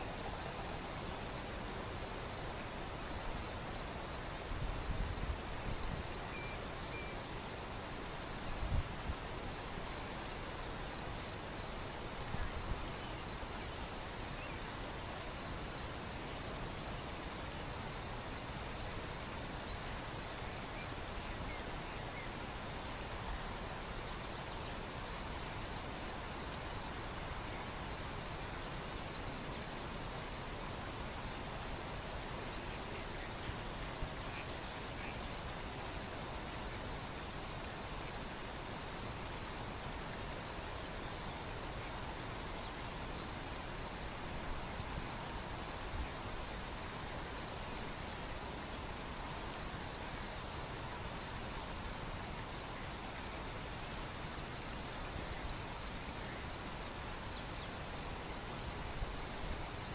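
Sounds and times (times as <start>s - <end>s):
insect chirring: 57.4s - 59.9s.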